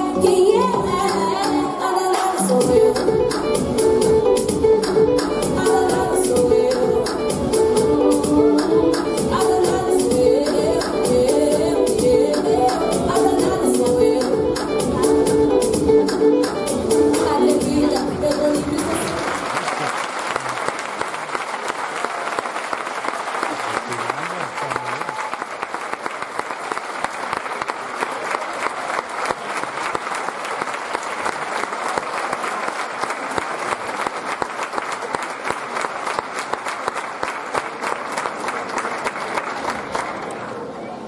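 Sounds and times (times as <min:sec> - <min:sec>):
audience applauding: 0:18.8 - 0:40.7.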